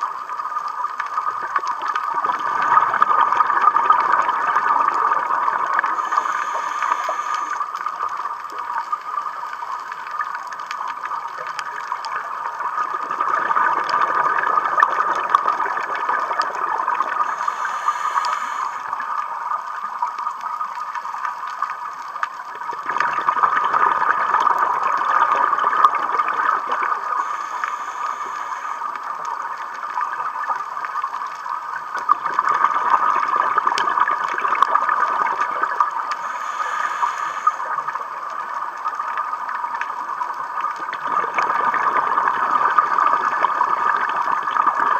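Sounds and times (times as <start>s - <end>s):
diver exhaling bubbles underwater: 1.3s - 7.7s, 12.2s - 19.1s, 22.6s - 28.6s, 32.0s - 38.4s, 40.7s - 44.9s.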